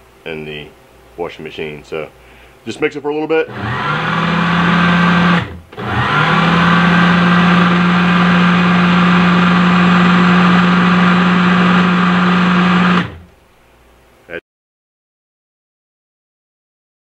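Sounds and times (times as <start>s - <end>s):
food processor motor humming: 3.5s - 13.3s.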